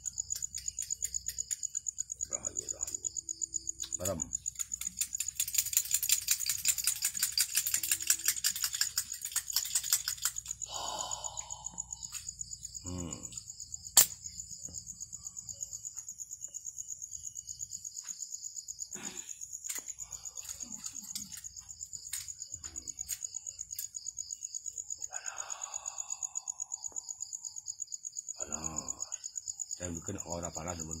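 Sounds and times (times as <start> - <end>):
high insect chirring: 0.0 - 31.0
sharp click: 14.0 - 14.3.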